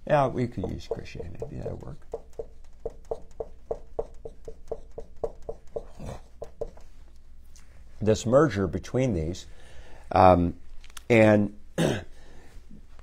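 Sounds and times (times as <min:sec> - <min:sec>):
marker writing on whiteboard: 0:00.3 - 0:07.2.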